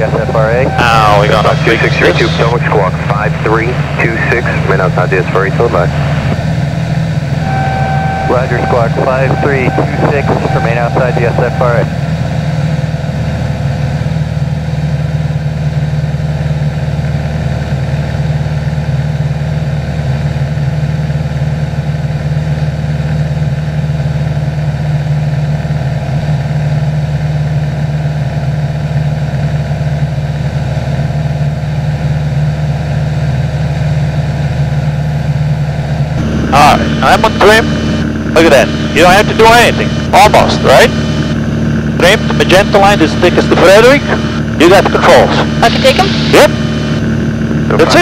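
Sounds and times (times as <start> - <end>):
propeller plane engine droning: 0.0 - 48.0.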